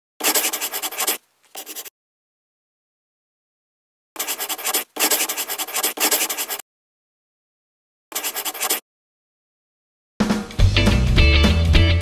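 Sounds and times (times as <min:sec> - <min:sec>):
pen scratching on paper: 0:00.2 - 0:01.9, 0:04.2 - 0:06.6, 0:08.1 - 0:08.8.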